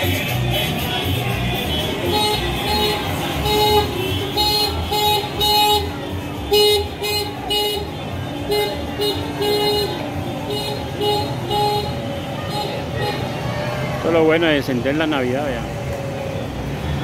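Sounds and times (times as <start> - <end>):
car horns beeping: 0.0 - 13.5.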